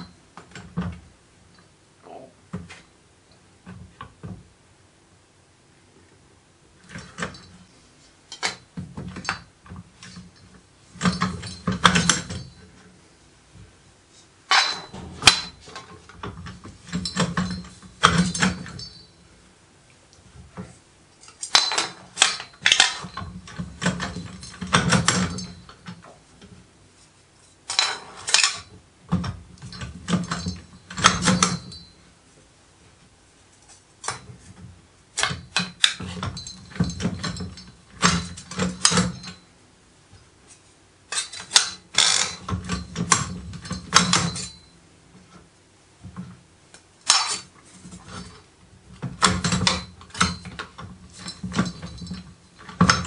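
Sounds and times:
sheet metal clinking and rattling: 8.3 - 12.9, 14.4 - 19.3, 20.6 - 26.1, 27.6 - 32.0, 34.0 - 39.5, 41.1 - 44.7, 47.0 - 53.0.

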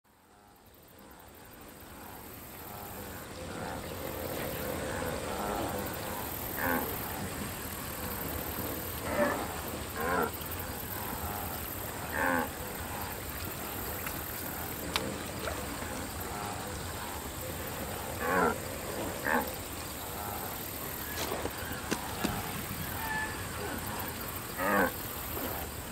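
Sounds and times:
outdoor ambience: 0.1 - 25.9.

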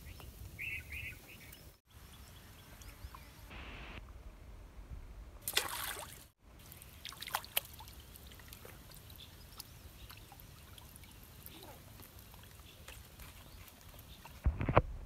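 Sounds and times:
fish splashing in water: 5.4 - 14.4
water dripping: 5.4 - 14.5.

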